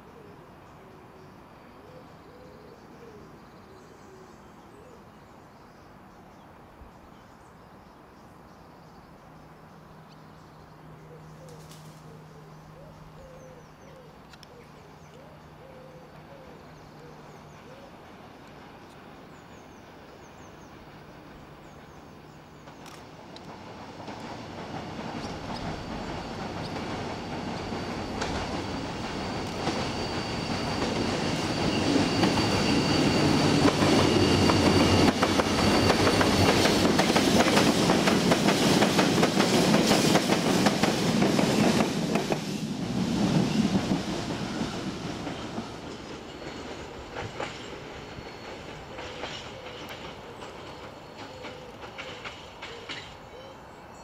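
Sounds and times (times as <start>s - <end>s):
diesel locomotive approaching: 0.0s - 54.0s
thin high whine: 25.0s - 37.5s.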